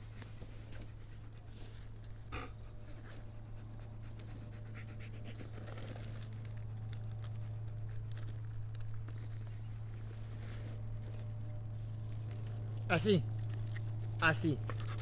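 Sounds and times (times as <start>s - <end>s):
dog panting: 0.0s - 8.5s, 13.0s - 15.0s
steady low hum: 0.0s - 15.0s.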